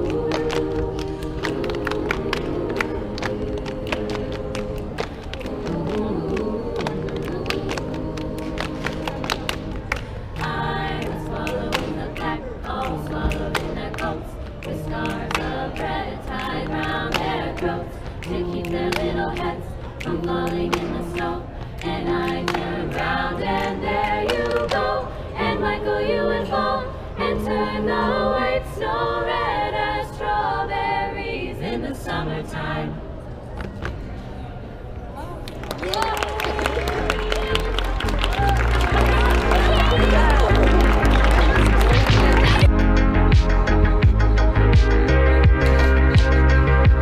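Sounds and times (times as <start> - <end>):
hand claps: 0.0 - 24.9, 35.5 - 42.7
group singing a cappella: 0.0 - 33.3, 38.6 - 47.0.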